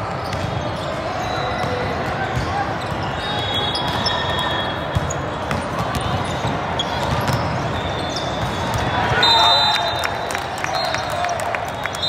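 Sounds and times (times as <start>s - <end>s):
volleyballs being hit and bouncing: 0.0s - 9.2s.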